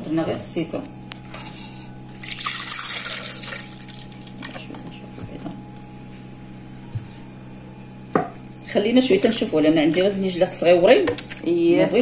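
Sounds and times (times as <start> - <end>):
steady low hum: 0.0 - 12.0
milk pouring into plastic jug: 2.2 - 4.6.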